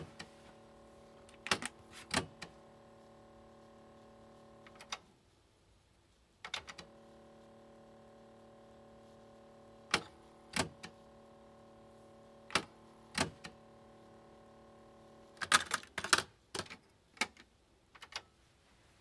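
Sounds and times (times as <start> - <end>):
cassette deck mechanism clacks: 15.4 - 17.4.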